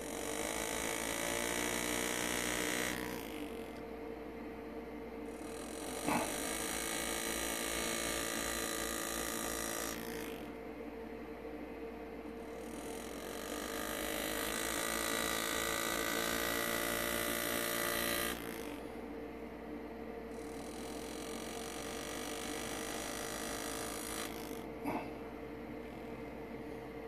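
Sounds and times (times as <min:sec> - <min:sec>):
engraving handpiece buzzing: 0:00.0 - 0:03.9, 0:05.2 - 0:10.6, 0:12.4 - 0:19.1, 0:20.3 - 0:25.1.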